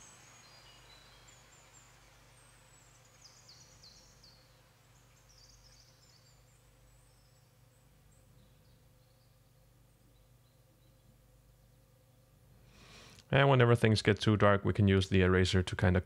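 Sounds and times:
faint high-pitched chirps: 0.0s - 12.0s
steady low hum: 0.0s - 16.0s.

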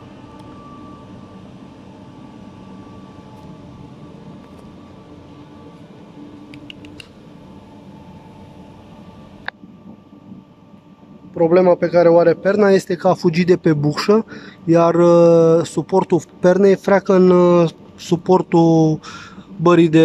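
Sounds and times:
faint steady tones: 0.0s - 19.8s
machine hum: 0.0s - 20.0s
sharp click: 6.5s - 7.2s.

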